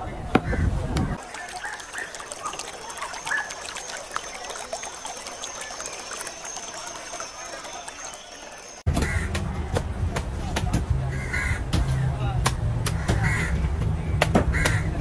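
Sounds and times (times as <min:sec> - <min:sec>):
water trickling and lapping: 0:01.2 - 0:08.9
bird chirps: 0:02.9 - 0:08.9.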